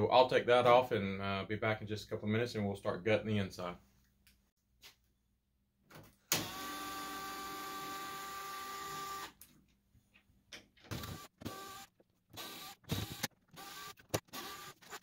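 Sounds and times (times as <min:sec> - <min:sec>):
cordless drill running: 0:06.4 - 0:09.4, 0:10.9 - 0:15.0.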